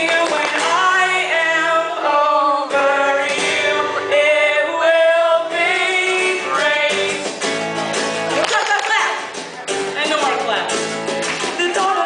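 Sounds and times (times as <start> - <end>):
woman singing: 0.0 - 7.1, 11.5 - 12.0
guitar accompaniment: 0.0 - 12.0.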